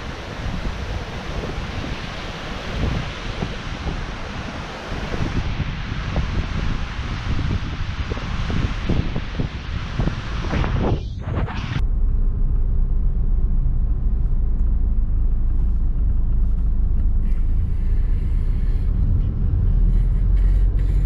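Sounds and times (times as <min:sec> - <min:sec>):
wind buffeting microphone: 0:00.0 - 0:12.5
car engine and road noise: 0:00.0 - 0:21.0.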